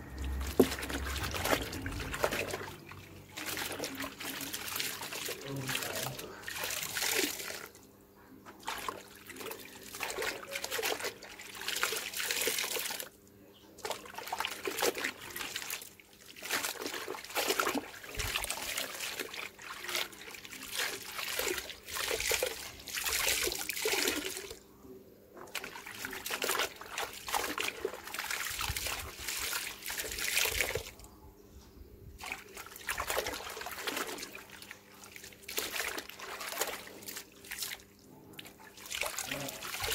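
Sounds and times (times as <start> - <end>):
water splashing and dripping: 0.0 - 7.7, 13.8 - 24.6, 25.5 - 30.9, 32.2 - 39.9.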